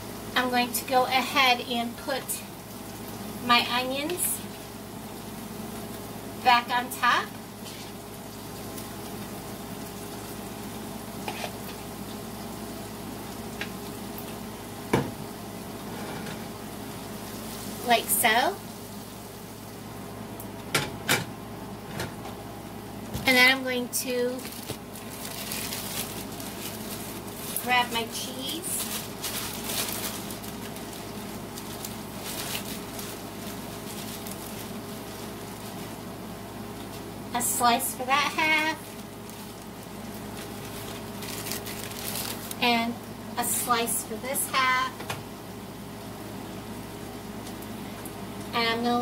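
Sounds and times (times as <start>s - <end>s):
beef and onions sizzling in skillet: 0.0s - 20.7s.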